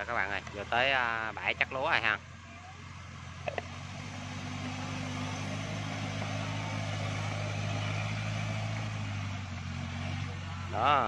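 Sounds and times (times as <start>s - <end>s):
tracked carrier engine running: 0.0s - 11.0s.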